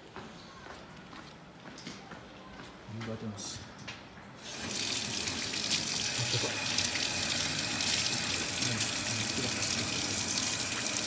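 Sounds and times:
water running into steel sink: 0:04.4 - 0:11.0.

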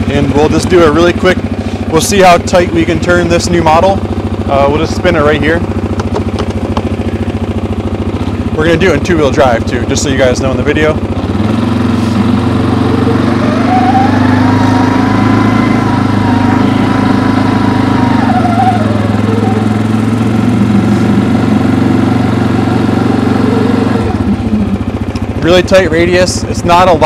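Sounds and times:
quad bike engine revving: 0:00.0 - 0:27.0.

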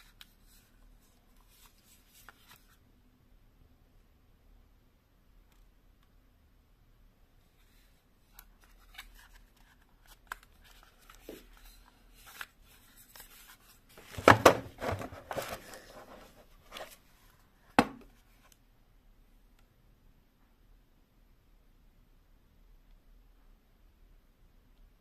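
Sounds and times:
packaging rustling: 0:08.6 - 0:17.0.

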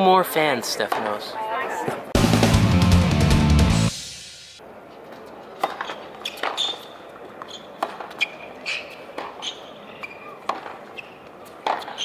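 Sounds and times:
shoe squeaks on court: 0:05.7 - 0:12.0
tennis ball pops off rackets: 0:10.0 - 0:10.8, 0:11.5 - 0:12.0.

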